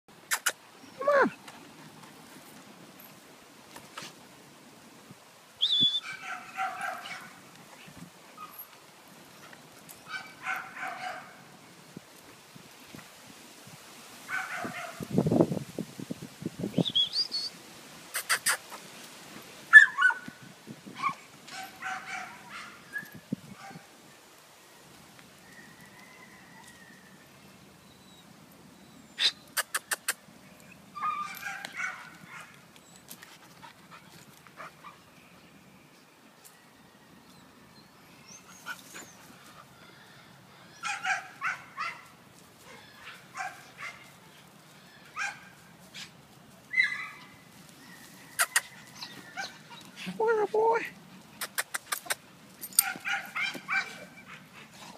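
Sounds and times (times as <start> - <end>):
dogs barking and yipping: 5.9 - 7.4, 8.3 - 11.5, 14.3 - 15.0, 19.7 - 23.9, 30.9 - 35.1, 40.8 - 44.4, 45.0 - 50.2, 51.2 - 54.9
sharp clicks: 51.4 - 52.2.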